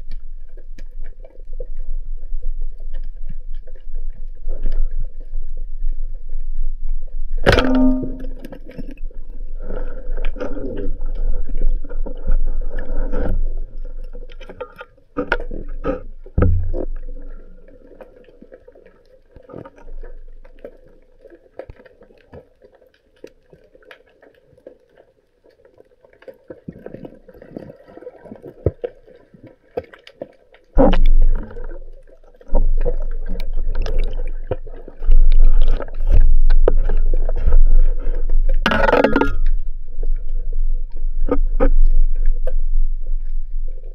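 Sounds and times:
faint underwater crackling and clicks: 0.0s - 43.9s
water rushing over camera: 7.2s - 18.2s, 30.7s - 43.9s.

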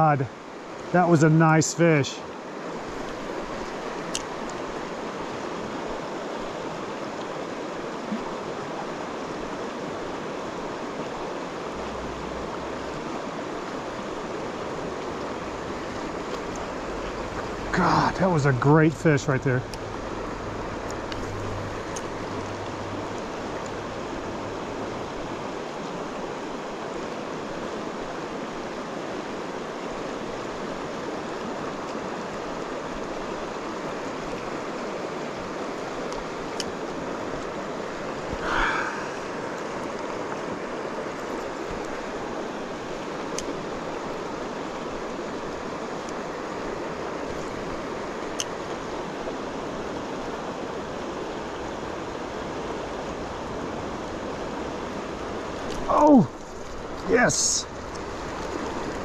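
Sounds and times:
river water rushing: 0.0s - 59.0s.

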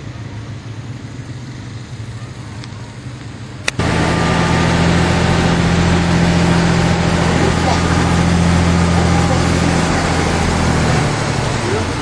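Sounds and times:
bus engine humming: 3.8s - 12.0s
low rumble: 3.8s - 12.0s.

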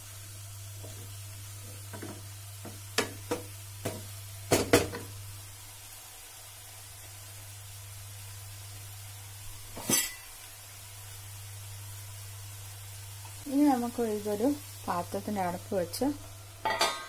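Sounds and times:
vegetables sizzling faintly: 0.0s - 17.0s
wooden spatula knocking on pan: 1.9s - 5.1s.

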